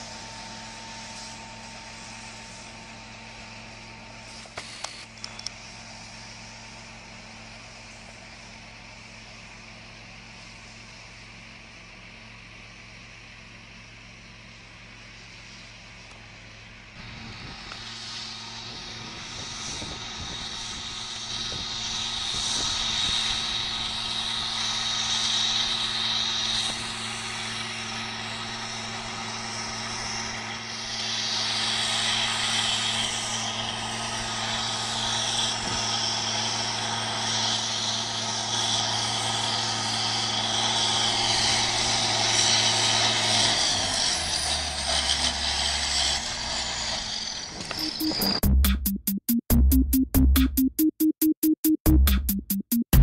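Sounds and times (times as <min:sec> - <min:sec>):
tractor engines droning: 0:00.0 - 0:53.0
high whine: 0:16.8 - 0:42.4, 0:45.9 - 0:53.0.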